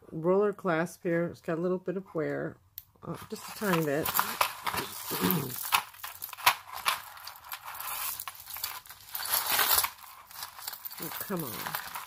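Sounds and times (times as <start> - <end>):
jewelry chains clicking and rustling: 3.3 - 12.0.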